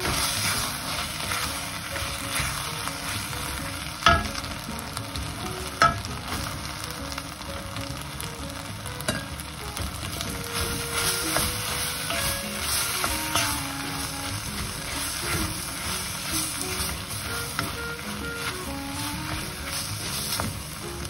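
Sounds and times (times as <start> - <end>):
wooden spatula scraping wok: 0.0 - 7.0, 9.2 - 21.0
food sizzling in a wok: 0.0 - 21.0.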